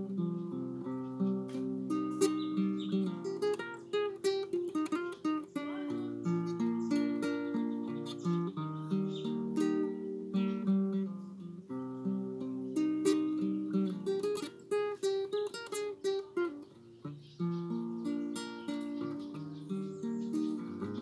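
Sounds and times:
classical guitar playing: 0.0 - 21.0.

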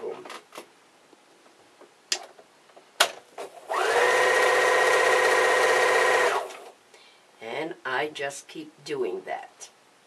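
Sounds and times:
sewing machine running: 3.7 - 6.6.

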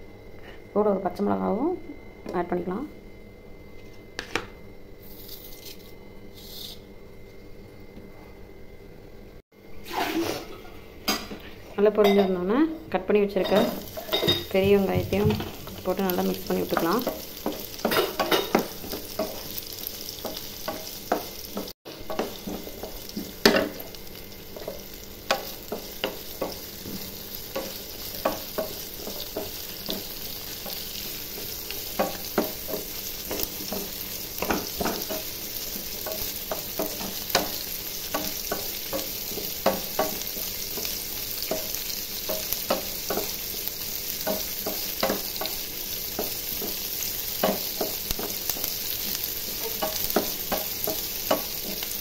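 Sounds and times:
onions sizzling in oil: 13.3 - 52.0.

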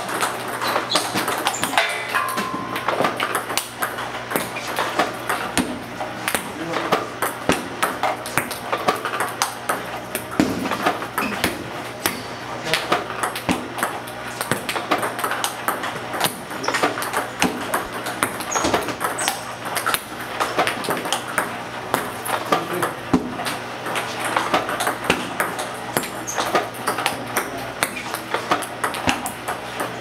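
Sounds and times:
ping pong ball clicks: 7.2 - 30.0.

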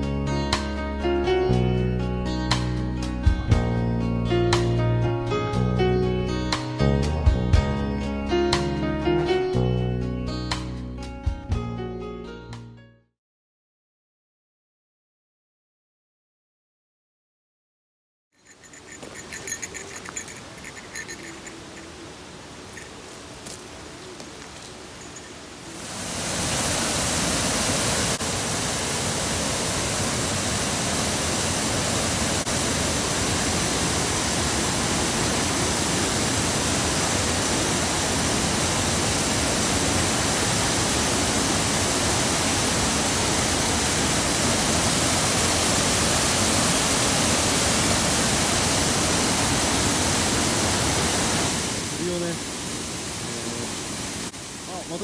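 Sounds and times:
waterfall rushing: 18.4 - 55.0.

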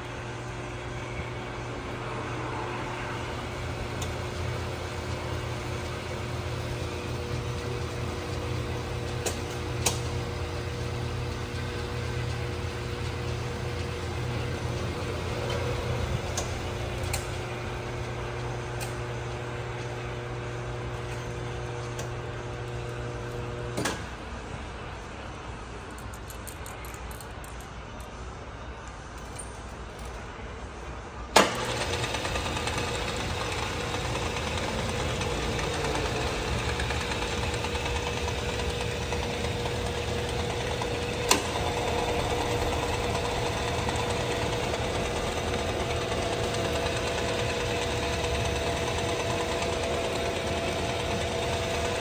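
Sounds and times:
lathe running with hum: 0.0 - 25.1, 31.4 - 52.0.

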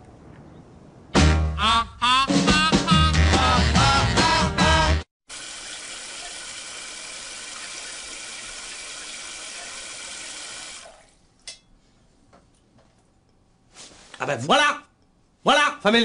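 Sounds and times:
music: 1.1 - 5.1
running water from a tap: 5.3 - 11.2.

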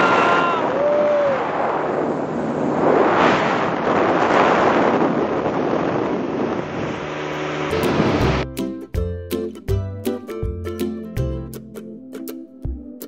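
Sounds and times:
water rushing along hull: 0.0 - 8.4
wind buffeting microphone: 0.0 - 8.4
low engine hum: 6.0 - 8.5.

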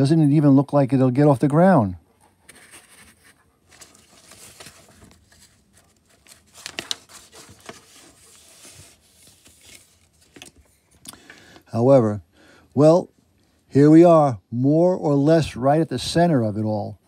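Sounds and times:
paper pages rustling: 2.5 - 10.8.

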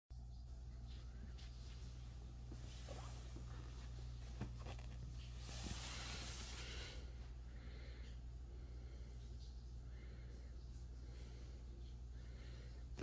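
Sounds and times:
low electrical hum: 0.1 - 13.0
hand rustling over fabric: 1.2 - 7.1.

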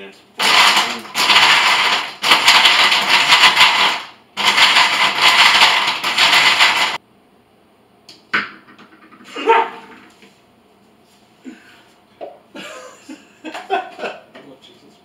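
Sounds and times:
blender running: 0.4 - 7.0.

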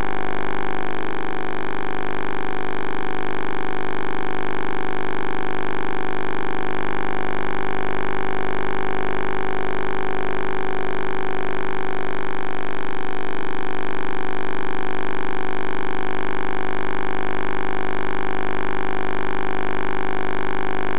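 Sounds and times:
electronic hum: 0.0 - 20.9.

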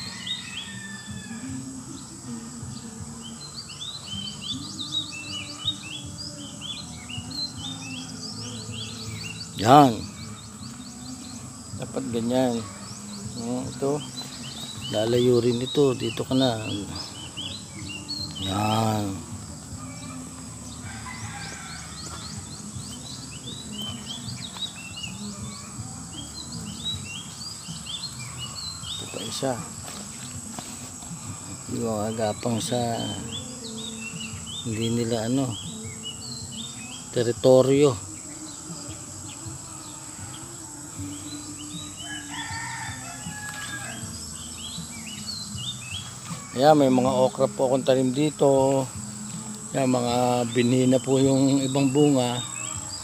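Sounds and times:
distant rooster crowing: 0.0 - 2.8, 7.3 - 33.7, 38.8 - 47.3
high insect drone: 0.0 - 53.0
small birds chirping: 0.0 - 53.0.

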